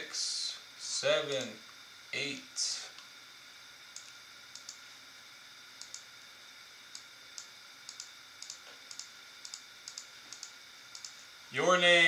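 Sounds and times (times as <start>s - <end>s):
faint electrical whine: 0.0s - 12.0s
mouse and keyboard clicks: 7.0s - 11.2s.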